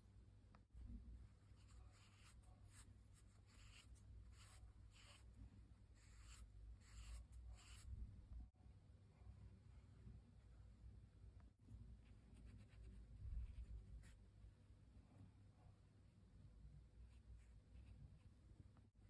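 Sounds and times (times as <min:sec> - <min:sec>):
paintbrush swishing on paper: 0:01.4 - 0:08.0.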